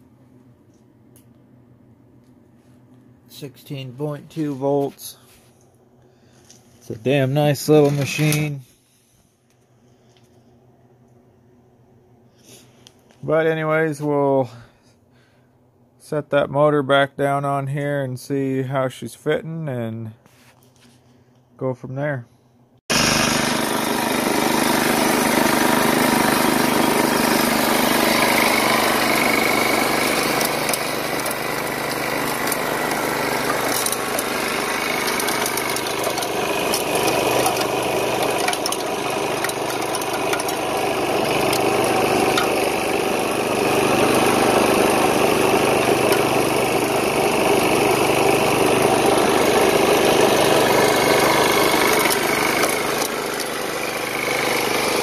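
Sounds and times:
snowblower engine running: 0.0 - 11.2, 22.9 - 55.0.

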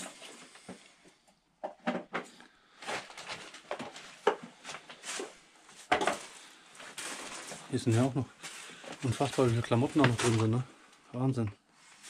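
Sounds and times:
rustles and small knocks: 0.2 - 10.7
footsteps: 2.8 - 10.7.

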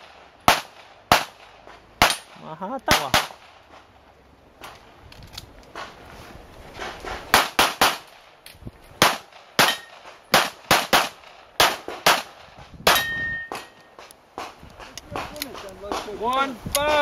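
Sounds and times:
steel target ringing: 9.6 - 9.9, 12.9 - 14.0.

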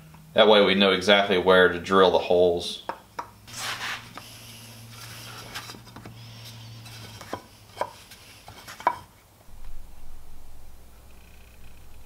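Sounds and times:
light scratching on wood: 3.5 - 4.3.

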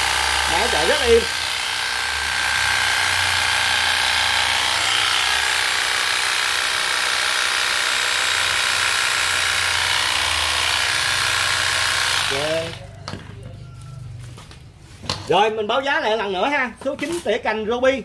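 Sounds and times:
electric hedge trimmer buzzing: 0.0 - 12.9.

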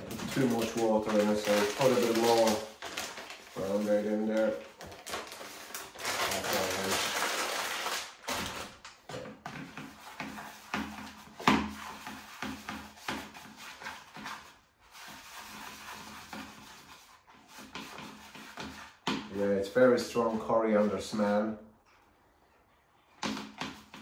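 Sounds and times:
breadcrumb pouring rustle: 0.0 - 4.6, 5.2 - 8.2
hand mixing in plastic tub: 0.0 - 21.8.

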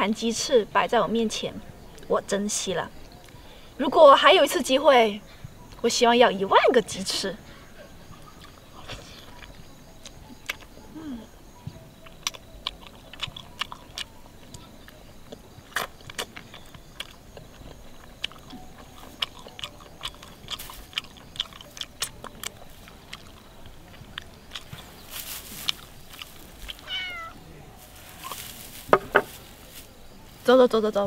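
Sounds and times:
wet chewing: 8.1 - 30.0
cat-like call: 26.8 - 27.4.

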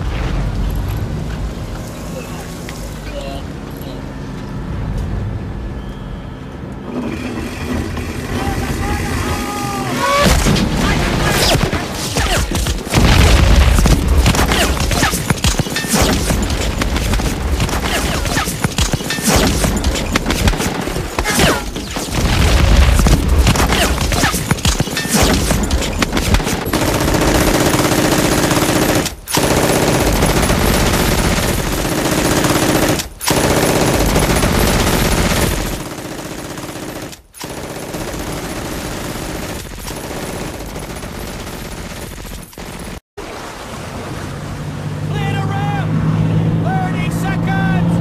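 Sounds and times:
rifle shots: 10.3 - 43.0
machine gun bursts: 11.3 - 43.0.

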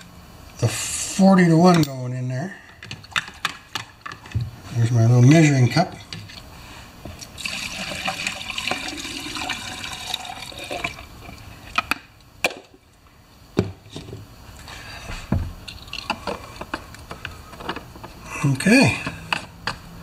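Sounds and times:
knocks and clicks of handling: 2.8 - 4.6, 19.0 - 19.9
fuel trickling into tank: 7.2 - 11.4, 15.6 - 16.6.

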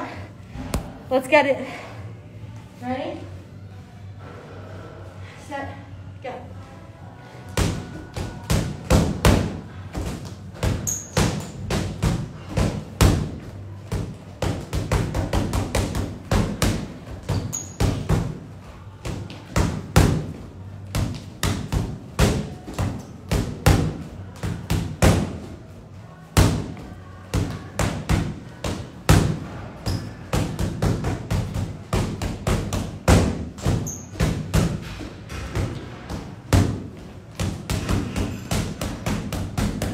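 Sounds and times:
gloves punching a bag: 26.4 - 39.9.

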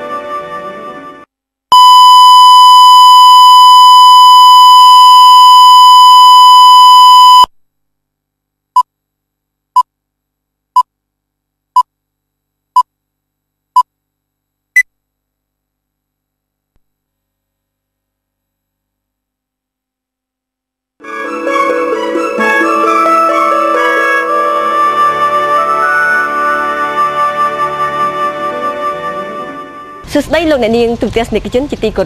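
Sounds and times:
countdown beeps: 1.7 - 7.5
steady pure test tone: 1.7 - 7.5.

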